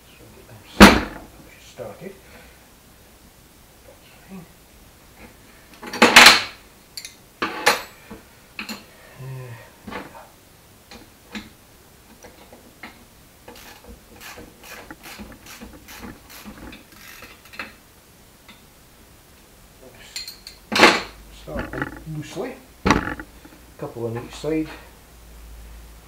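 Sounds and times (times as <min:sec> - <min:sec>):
bolts and nuts clinking: 0:20.1 - 0:22.2.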